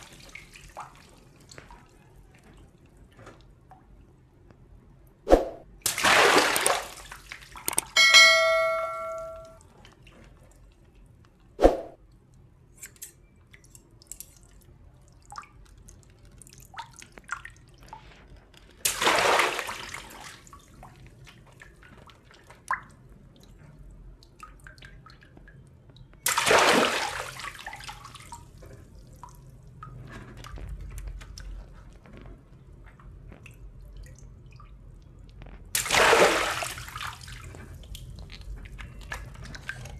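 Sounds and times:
water splashing on tiled floor: 0.0 - 3.5, 5.7 - 8.0, 13.4 - 39.9
dripping water: 5.9 - 12.5, 13.4 - 39.9
bell-like chime: 8.0 - 9.6.

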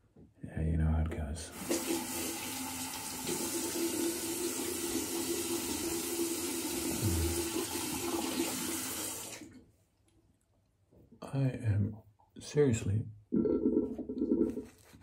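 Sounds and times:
tap water running into sink: 1.5 - 9.5.

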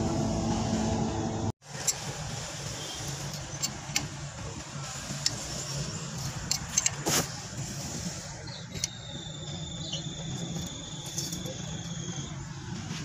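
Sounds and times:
metal clicks and knocks: 6.2 - 7.1
thin high tone: 8.4 - 12.4.

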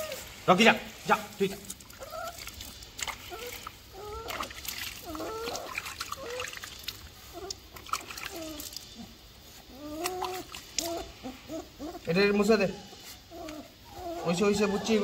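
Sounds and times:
puppy whining: 0.0 - 0.4, 1.9 - 15.0
water splashing and dripping: 0.0 - 11.2.

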